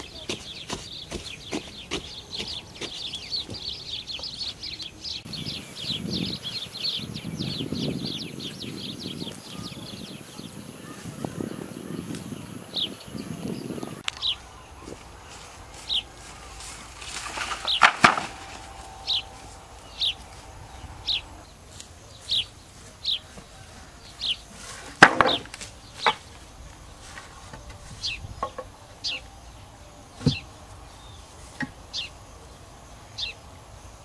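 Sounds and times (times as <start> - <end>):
wooden poles dropped on pile: 16.3 - 20.2, 24.6 - 26.4
bird short high call: 17.7 - 21.4.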